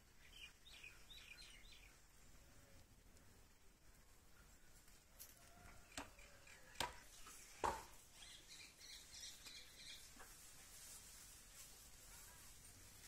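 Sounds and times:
birds chirping: 0.2s - 2.0s, 5.9s - 10.1s
sharp knocks: 7.6s - 8.0s.

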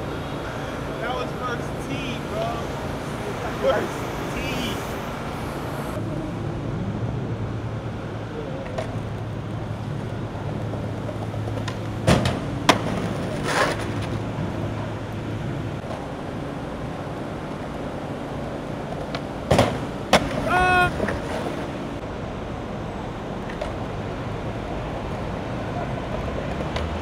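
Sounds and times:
city traffic hum: 0.0s - 27.0s
skateboard clacking on stone ledge: 10.5s - 14.2s.

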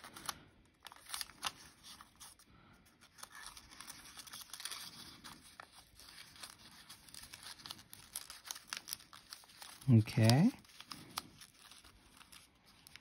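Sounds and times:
paper rustling and crinkling: 0.0s - 13.0s
crisp paper ticks: 3.2s - 13.0s.

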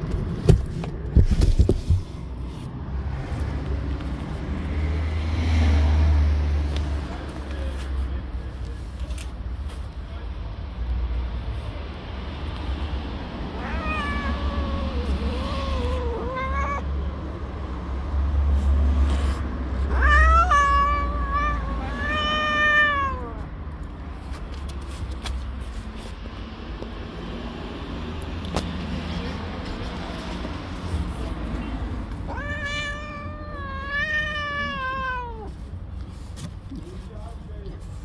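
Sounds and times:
cat yowling angrily: 13.5s - 17.0s, 19.8s - 23.5s, 32.3s - 35.5s.

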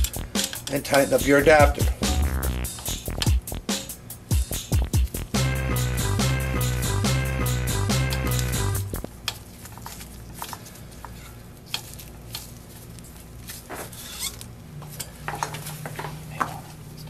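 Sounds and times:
background music: 0.0s - 9.0s.

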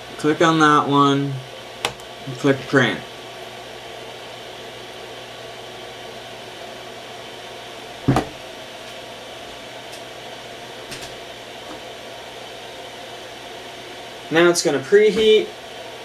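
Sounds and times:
fan-like room hum: 0.0s - 16.0s
brief thump: 8.1s - 8.4s.

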